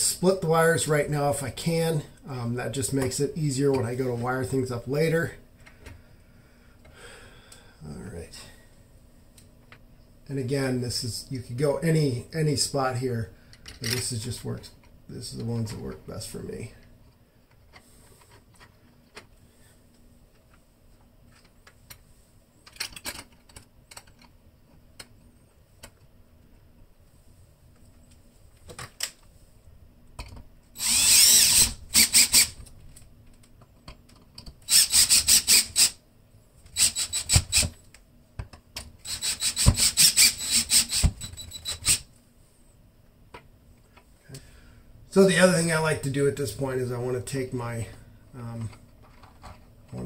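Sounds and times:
cordless drill driving screws: 0:30.8 - 0:32.6, 0:34.7 - 0:36.0, 0:36.8 - 0:37.7, 0:39.0 - 0:42.0.

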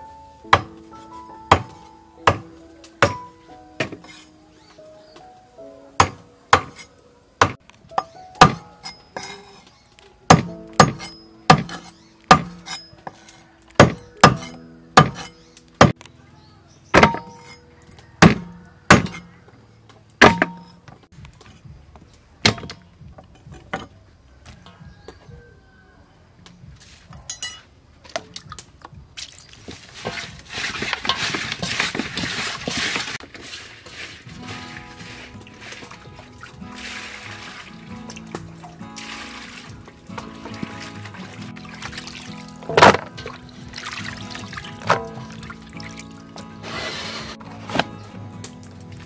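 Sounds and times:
soft instrumental music: 0:00.0 - 0:33.0, 0:33.9 - 0:49.0
knife chopping on wooden board: 0:01.5 - 0:03.2, 0:06.0 - 0:06.8, 0:08.4 - 0:08.7, 0:10.3 - 0:12.6, 0:13.8 - 0:16.0, 0:18.2 - 0:19.2.

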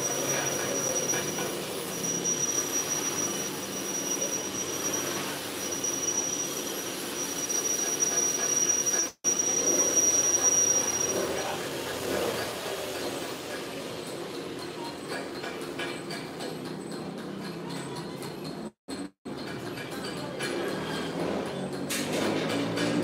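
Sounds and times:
high-pitched whine: 0:00.0 - 0:12.2.

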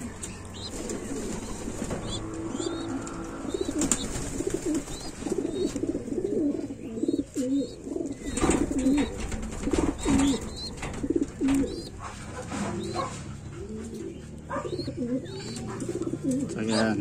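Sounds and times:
pigeons cooing: 0:00.0 - 0:17.0
rustles and taps: 0:08.3 - 0:14.6.

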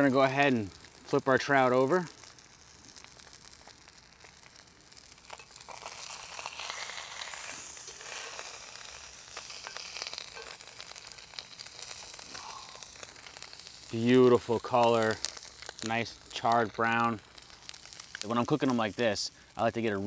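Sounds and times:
fish sizzling in a pan: 0:00.0 - 0:20.0
oil clicks and pops: 0:02.1 - 0:14.0, 0:14.7 - 0:18.3.

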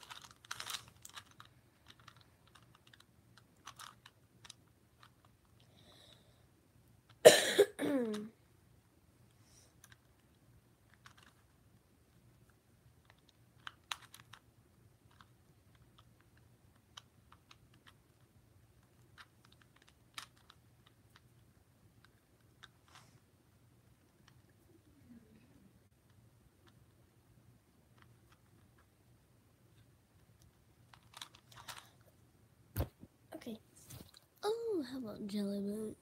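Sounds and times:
puzzle cube clicking: 0:00.0 - 0:05.6, 0:09.8 - 0:11.6, 0:12.4 - 0:23.1, 0:29.7 - 0:32.0.

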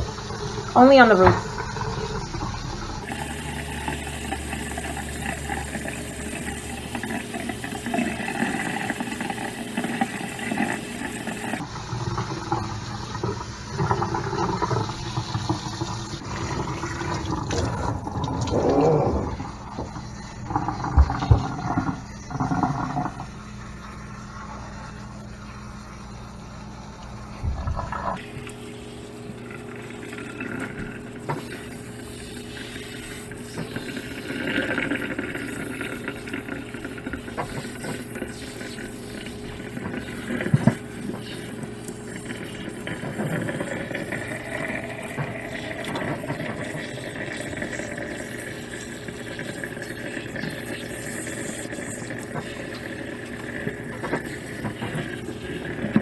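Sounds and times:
sprayer water splashing on hair: 0:30.8 - 0:56.0.

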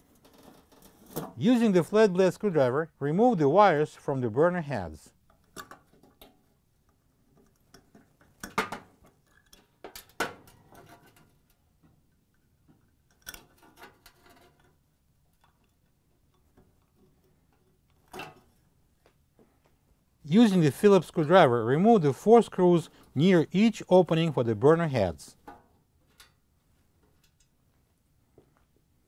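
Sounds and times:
screwdriver clicks and metal taps: 0:07.4 - 0:11.6.

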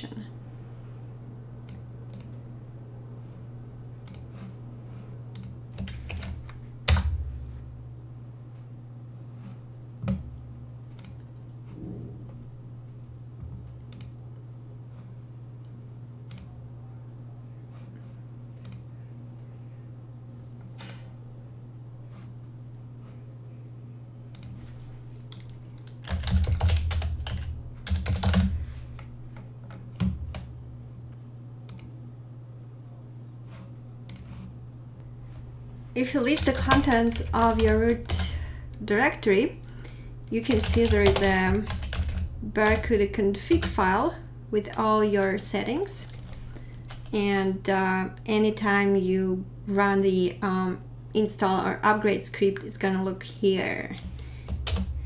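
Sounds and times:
steady low hum: 0:00.0 - 0:55.0
keyboard typing: 0:05.3 - 0:07.2, 0:25.3 - 0:30.5, 0:36.3 - 0:38.4, 0:40.4 - 0:43.9, 0:54.4 - 0:55.0.

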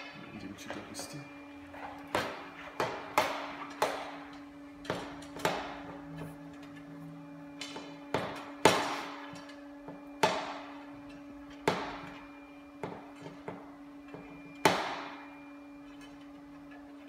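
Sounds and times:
steady hum: 0:00.0 - 0:17.0
loud sharp ringing knocks: 0:07.6 - 0:10.8, 0:11.5 - 0:15.4.

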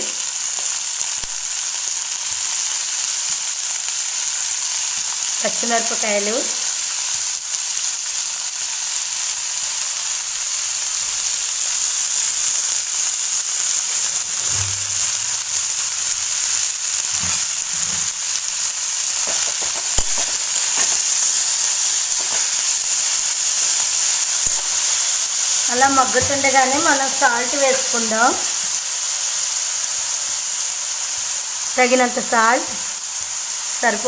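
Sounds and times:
leaves sizzling in hot oil: 0:00.0 - 0:34.0
steel spoon stirring: 0:14.0 - 0:21.2.

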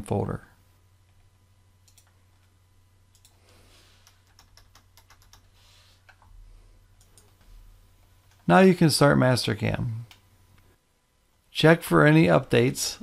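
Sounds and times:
steady low hum: 0:00.0 - 0:13.0
computer keyboard typing: 0:01.8 - 0:02.5, 0:04.0 - 0:06.3, 0:07.0 - 0:07.4.

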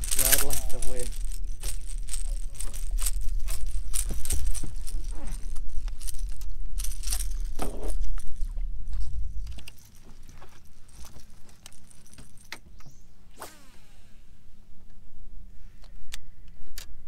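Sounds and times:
steady low rumble: 0:00.0 - 0:12.5
metallic jingle of hooks: 0:00.0 - 0:13.0.

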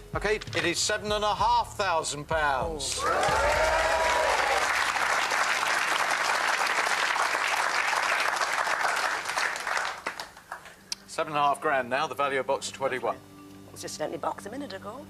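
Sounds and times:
audience applauding: 0:02.9 - 0:10.8.

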